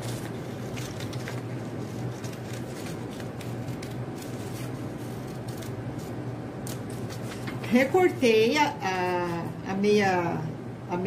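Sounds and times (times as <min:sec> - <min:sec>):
scissors snipping paper: 0:00.0 - 0:07.5
steady low hum: 0:00.0 - 0:11.0.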